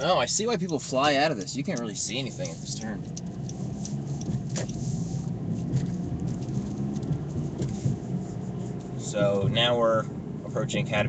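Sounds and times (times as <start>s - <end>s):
car engine and tyre hum: 0.0s - 11.0s
faint ticks: 0.4s - 4.8s.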